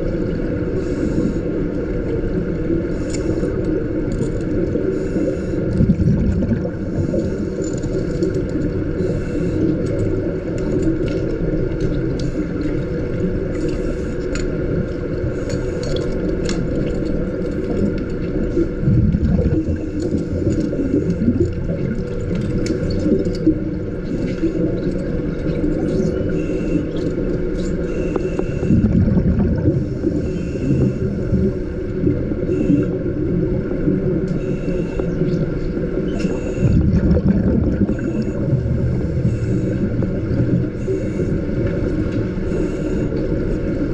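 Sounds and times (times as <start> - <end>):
low underwater hum: 0.0 - 43.9
scuba exhaust bubbles rumbling: 0.0 - 43.9
small clicks of gear: 15.4 - 18.3.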